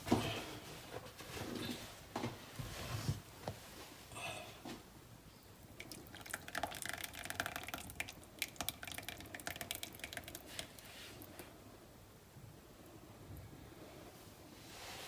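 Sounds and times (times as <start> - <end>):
liquid trickling and splashing: 5.8 - 10.9.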